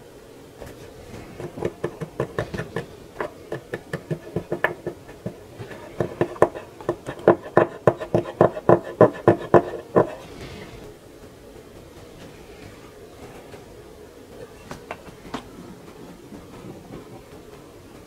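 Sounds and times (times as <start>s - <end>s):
swab scrubbing circuit board: 1.4s - 10.3s.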